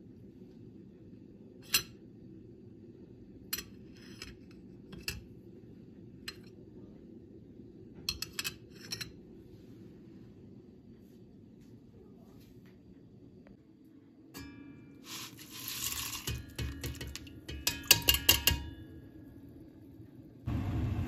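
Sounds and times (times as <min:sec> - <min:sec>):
steady low hum: 0:00.0 - 0:21.0
kitchenware clicking and clinking: 0:08.0 - 0:09.2, 0:14.4 - 0:18.8.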